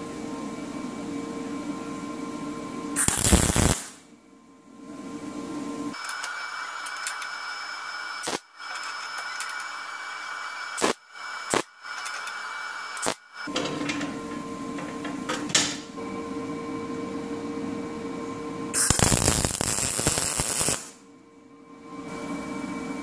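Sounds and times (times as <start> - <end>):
welder hissing: 3.0 - 4.0, 6.0 - 13.5, 18.7 - 21.0.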